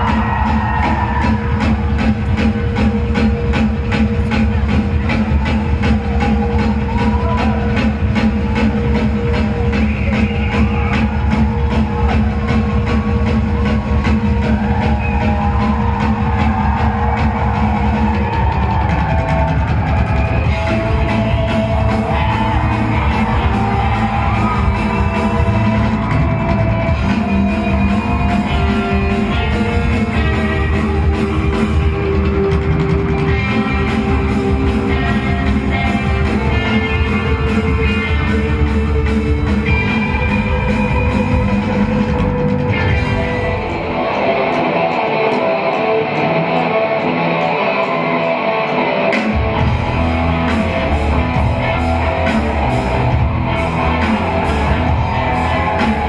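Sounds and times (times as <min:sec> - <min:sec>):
rock band playing live: 0:00.0 - 0:56.0
electric guitar playing alone: 0:19.9 - 0:56.0.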